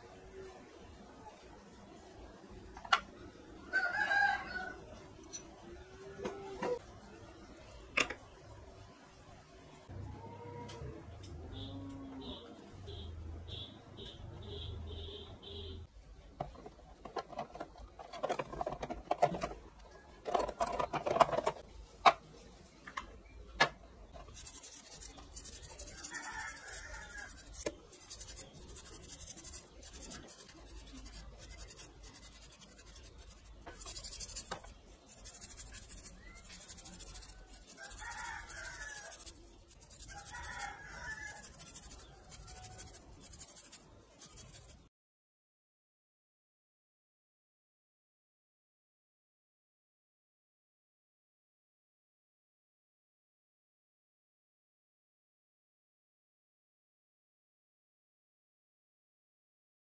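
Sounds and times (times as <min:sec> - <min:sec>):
rubbing and scraping on engine parts: 0:16.4 - 0:21.7, 0:24.1 - 0:44.9.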